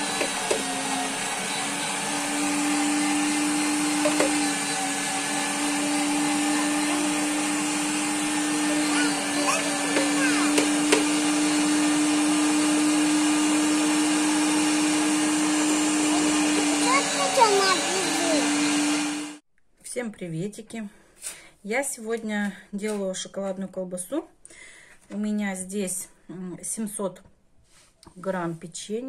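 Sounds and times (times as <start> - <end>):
electric motor whirring hum: 0.0 - 19.4.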